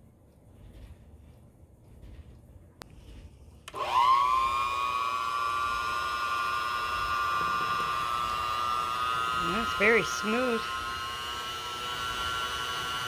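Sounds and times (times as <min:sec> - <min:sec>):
hand mixer motor whine: 0:03.6 - 0:13.0.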